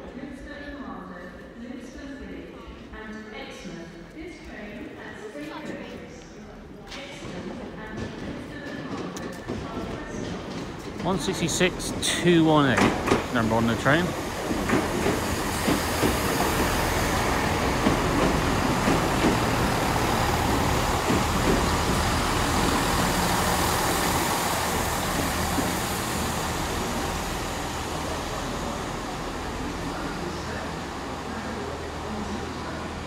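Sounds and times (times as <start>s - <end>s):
rail noise: 7.0s - 33.0s
train knocks: 7.2s - 33.0s
diesel train drone: 11.0s - 33.0s.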